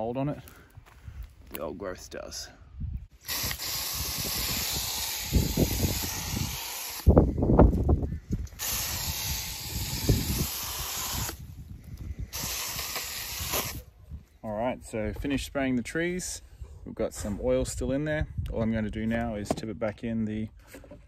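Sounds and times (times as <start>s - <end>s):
hose sprayer hissing: 3.2s - 7.1s, 8.5s - 11.5s, 12.3s - 13.8s.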